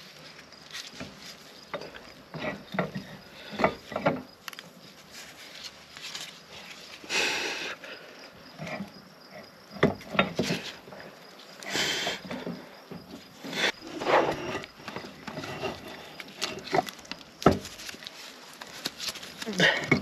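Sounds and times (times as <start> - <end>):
scraping rustle: 0.0 - 7.2, 8.4 - 20.0
metal knocks and clunks: 1.0 - 4.3, 9.8 - 11.0.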